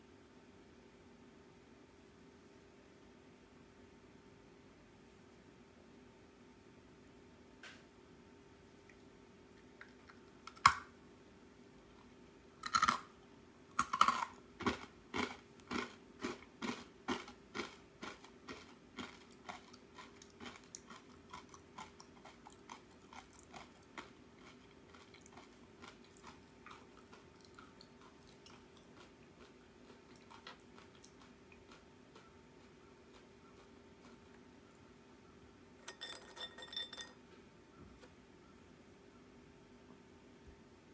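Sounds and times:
rice cracker being chewed: 0:11.9 - 0:13.1, 0:13.7 - 0:34.8.

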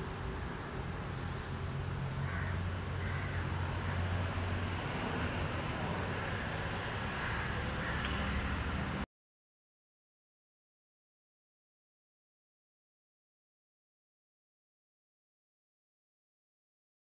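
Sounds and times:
low engine-like rumble: 0:00.0 - 0:09.1.

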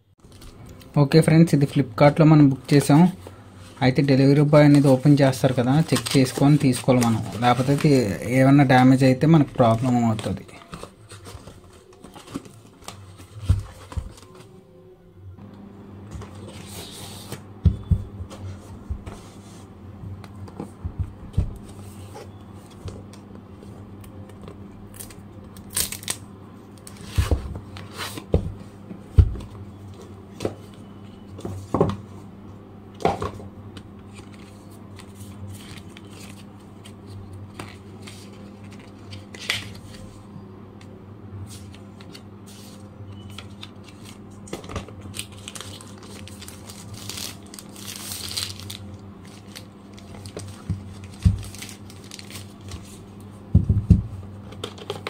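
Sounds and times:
low steady hum: 0:00.0 - 0:55.0
cardboard packaging rustling: 0:03.9 - 0:08.5, 0:09.4 - 0:14.5, 0:34.1 - 0:40.1, 0:41.6 - 0:53.0.

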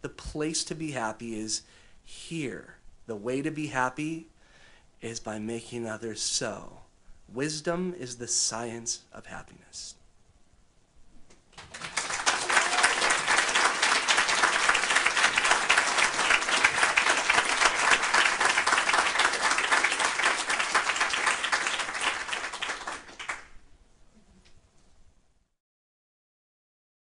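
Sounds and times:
audience applauding: 0:11.6 - 0:23.6.

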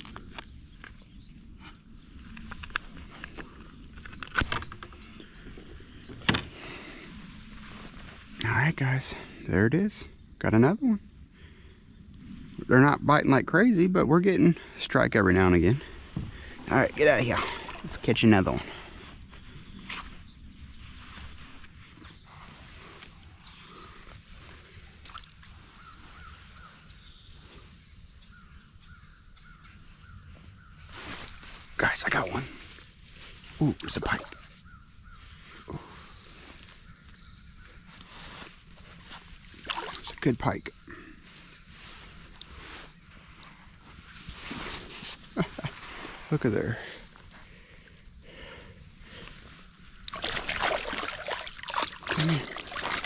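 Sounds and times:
fishing tackle rattling and clicking: 0:02.2 - 0:06.5.

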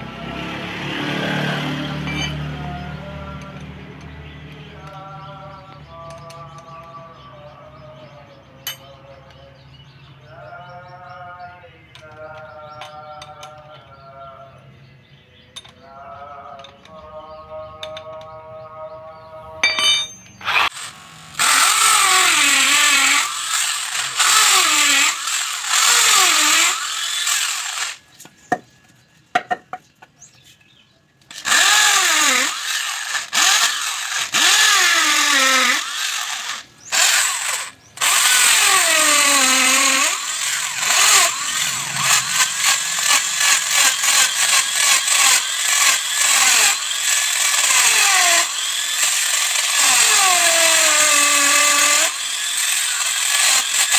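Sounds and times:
electric drill boring wood: 0:20.4 - 0:28.1, 0:31.3 - 0:53.9.

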